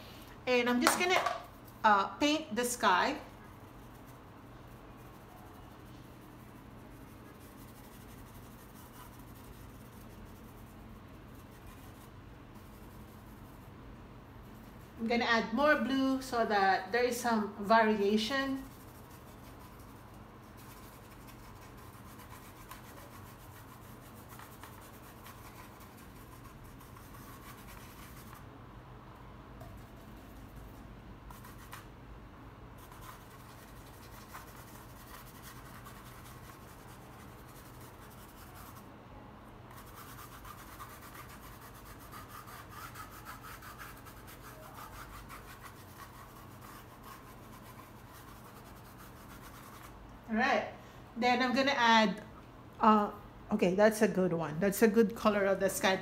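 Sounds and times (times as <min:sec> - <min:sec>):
paintbrush scrubbing canvas: 0:02.9 - 0:16.5, 0:17.2 - 0:28.5, 0:29.6 - 0:31.9, 0:32.8 - 0:38.9, 0:39.7 - 0:50.0.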